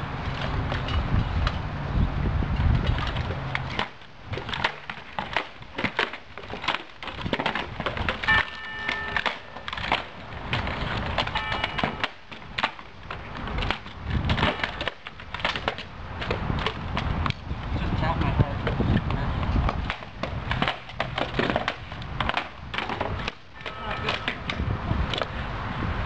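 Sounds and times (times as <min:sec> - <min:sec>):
hard objects clacking: 0:02.9 - 0:17.5, 0:18.6 - 0:25.3
brief pitched tones: 0:08.3 - 0:09.6.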